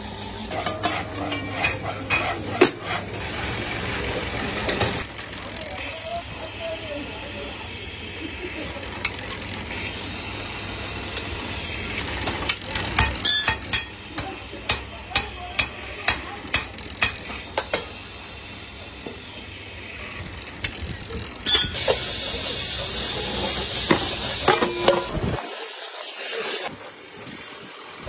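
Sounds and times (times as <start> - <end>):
drill press motor running: 3.1 - 25.0.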